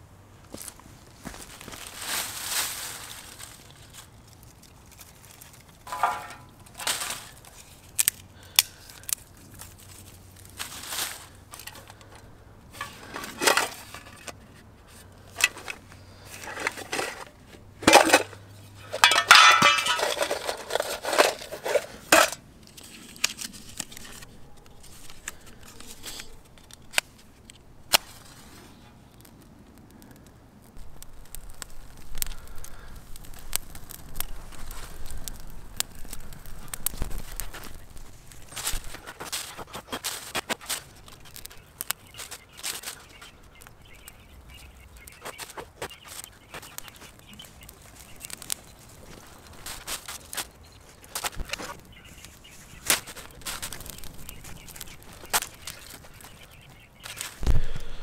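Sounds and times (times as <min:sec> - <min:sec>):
fire crackling: 0:00.2 - 0:58.0
dry leaves and twigs rustling: 0:00.3 - 0:58.0
clicks and knocks against metal: 0:05.8 - 0:07.3, 0:16.4 - 0:22.4.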